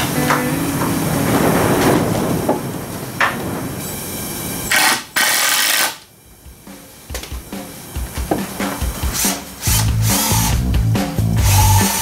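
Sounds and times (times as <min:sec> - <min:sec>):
power drill driving a screw: 0:04.7 - 0:06.1, 0:09.2 - 0:10.6, 0:11.4 - 0:12.0.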